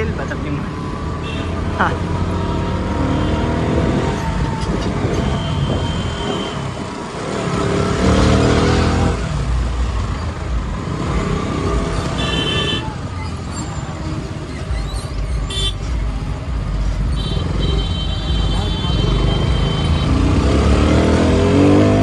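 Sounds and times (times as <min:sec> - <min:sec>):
motorcycle engine revving: 0:00.8 - 0:22.0
wind noise on microphone: 0:03.6 - 0:07.1.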